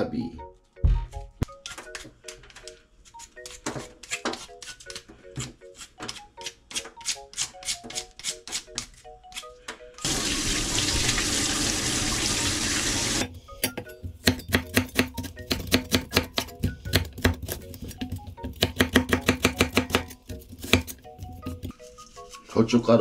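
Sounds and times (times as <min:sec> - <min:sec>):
faucet running into steel sink: 0:10.1 - 0:13.2
cleaver chopping on wooden board: 0:14.2 - 0:21.7.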